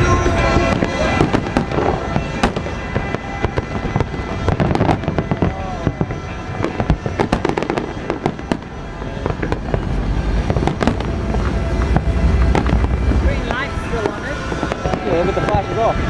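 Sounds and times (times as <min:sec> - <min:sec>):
fireworks cracks and bangs: 0:00.0 - 0:16.0
low rumble: 0:08.0 - 0:14.9.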